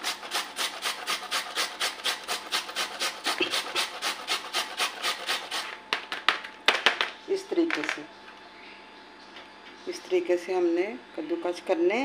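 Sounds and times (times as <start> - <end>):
potato grating on metal grater: 0.0 - 5.8.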